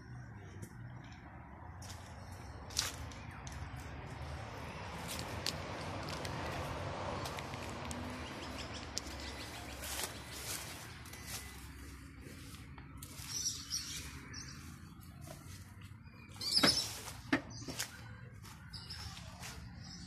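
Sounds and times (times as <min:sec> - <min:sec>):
footsteps on driveway: 0:00.7 - 0:20.0
small birds chirping: 0:07.8 - 0:20.0.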